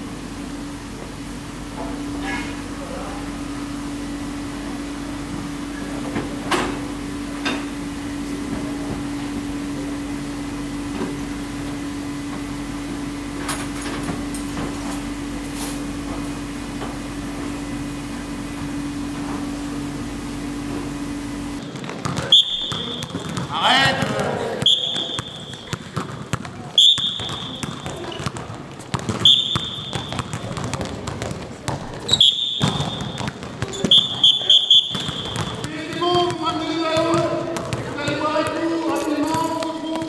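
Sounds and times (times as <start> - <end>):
machine hum: 0.0 - 21.8.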